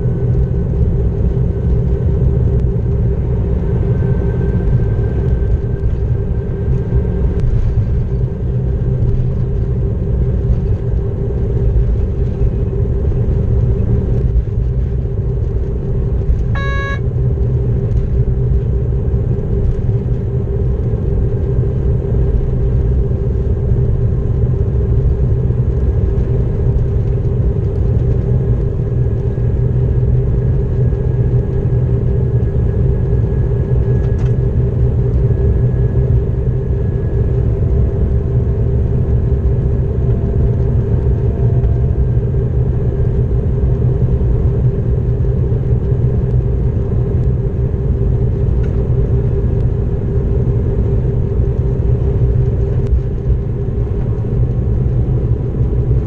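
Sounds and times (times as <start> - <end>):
constant hum: 0.0 - 56.0
diesel locomotive engine drone: 0.0 - 56.0
short single tone: 16.5 - 17.1.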